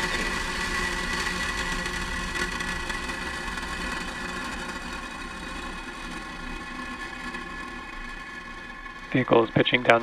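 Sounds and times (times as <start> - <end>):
rocket engines rumbling: 9.0 - 10.0.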